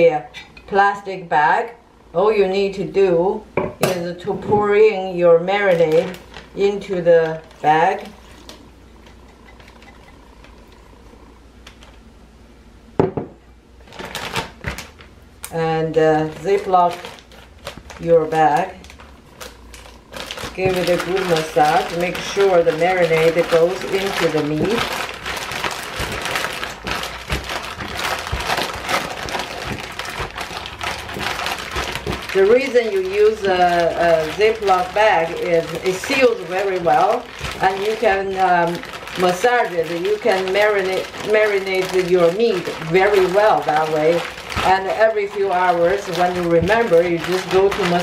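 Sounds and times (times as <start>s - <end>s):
plastic bag crinkling: 4.2s - 12.1s, 13.8s - 48.0s
glass cup knocking on countertop: 13.0s - 13.4s.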